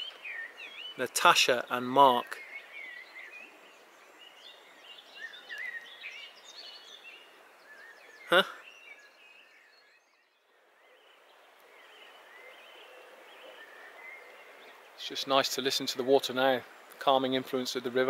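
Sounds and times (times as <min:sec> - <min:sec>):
songbirds singing: 0:00.0 - 0:18.0.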